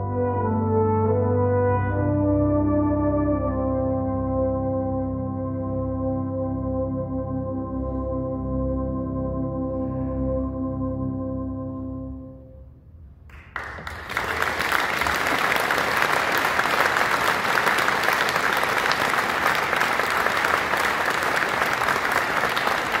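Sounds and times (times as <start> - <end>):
audience applauding: 13.3 - 23.0.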